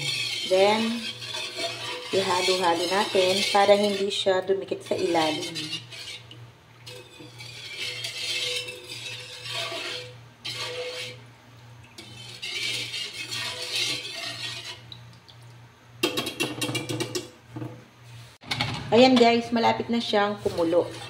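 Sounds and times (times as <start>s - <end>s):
whisk clinking against metal pan: 0.0s - 6.3s, 6.9s - 11.2s, 12.0s - 14.9s
whisk swishing through liquid: 0.0s - 15.1s, 20.2s - 21.0s.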